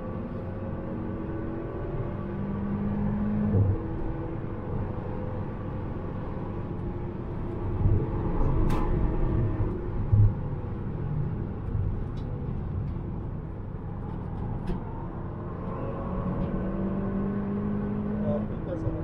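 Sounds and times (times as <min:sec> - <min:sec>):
road and wind noise: 0:00.0 - 0:19.0
car engine revving: 0:15.5 - 0:19.0.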